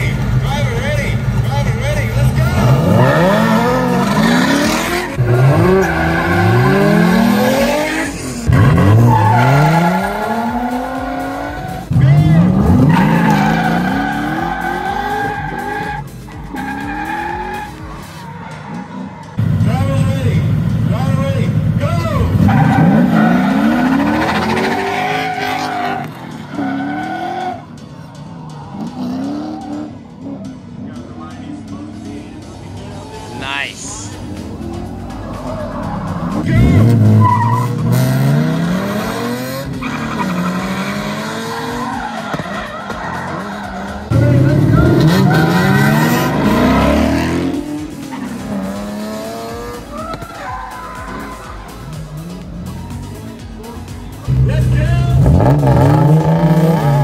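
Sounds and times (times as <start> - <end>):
car engines revving hard: 0.0 - 57.0
tyres squealing: 2.2 - 19.4, 22.0 - 27.7, 32.6 - 53.3.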